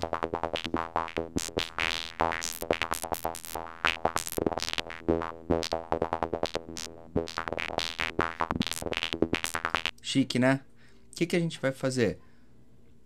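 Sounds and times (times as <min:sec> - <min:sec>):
fast synthesizer sequence: 0:00.0 - 0:09.9.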